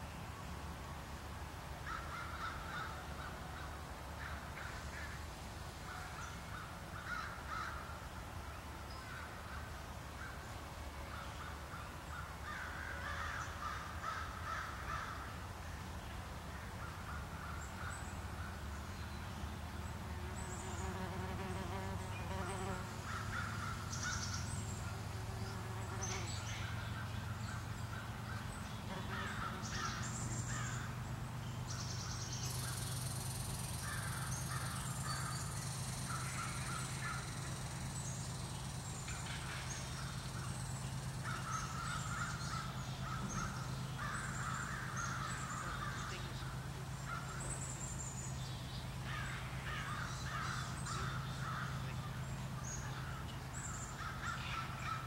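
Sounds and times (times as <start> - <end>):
crows cawing: 1.8 - 4.8, 7.0 - 7.8, 12.4 - 15.3, 23.0 - 24.3, 27.9 - 30.9, 33.8 - 35.4, 41.2 - 46.4, 49.1 - 51.9.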